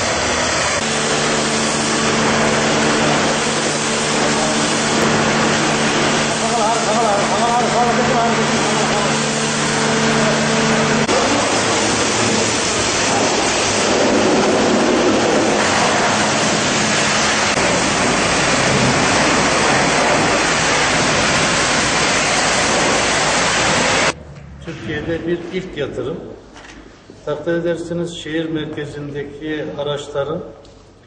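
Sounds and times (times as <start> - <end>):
high-pressure water spraying: 0.0 - 24.2
machine hum: 0.0 - 26.6.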